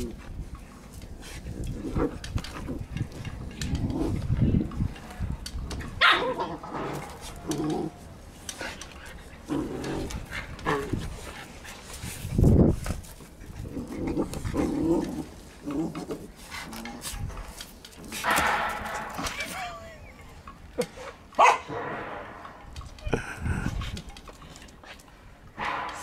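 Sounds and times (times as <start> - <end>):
dogs barking: 6.0 - 6.6, 20.8 - 22.0.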